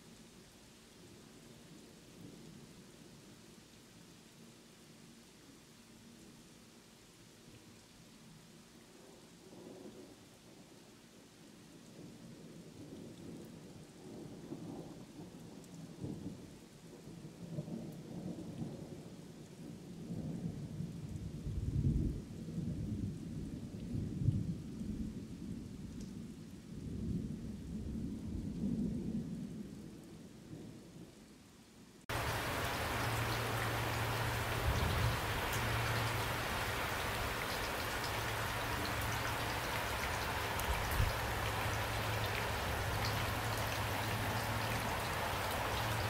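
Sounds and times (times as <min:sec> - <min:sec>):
steady rain: 0:00.0 - 0:46.0
thunder rumbling: 0:32.1 - 0:46.0.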